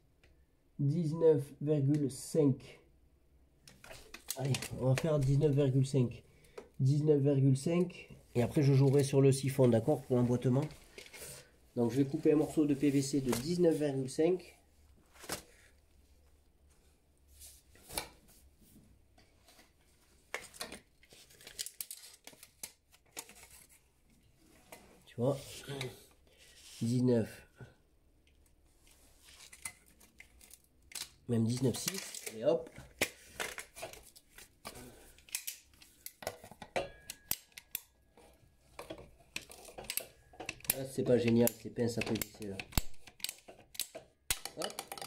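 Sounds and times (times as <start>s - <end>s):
handling clicks and rattles: 38.7s - 45.0s.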